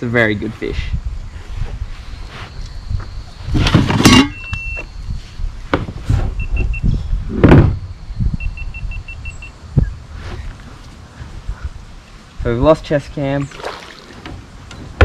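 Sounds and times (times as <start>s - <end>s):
gear bumping and scraping: 3.5s - 4.5s.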